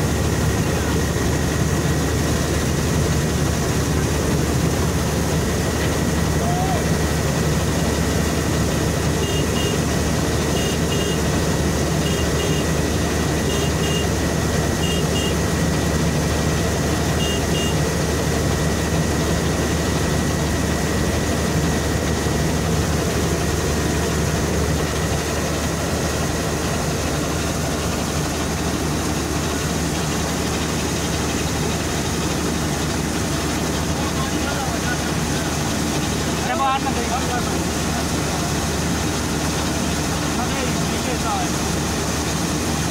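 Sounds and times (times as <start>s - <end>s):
combine harvester running: 0.0s - 42.9s
short double beep: 9.2s - 9.8s, 10.5s - 11.3s, 13.5s - 14.1s, 17.2s - 17.8s.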